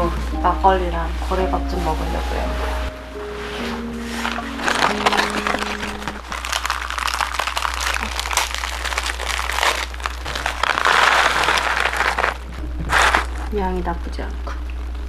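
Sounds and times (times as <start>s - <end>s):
plastic snack bag crinkling: 4.2s - 13.6s.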